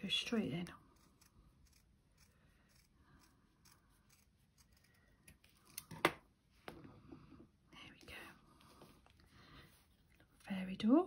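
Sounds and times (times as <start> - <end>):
scissors snipping felt: 0.6 - 6.0.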